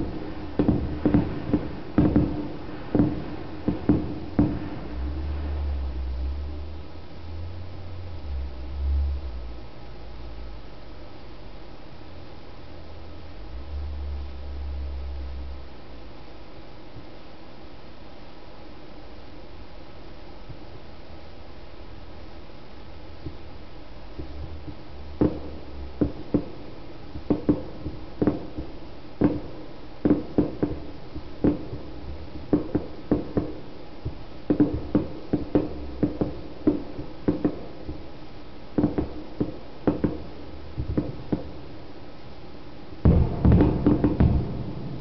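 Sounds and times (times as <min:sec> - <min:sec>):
fireworks booming: 0:00.0 - 0:07.2, 0:23.2 - 0:45.0.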